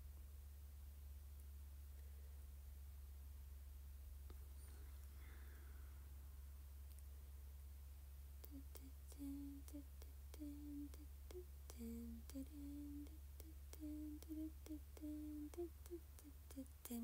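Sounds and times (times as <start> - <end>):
low electrical hum: 0.0 - 17.0
woman humming softly: 8.4 - 17.0.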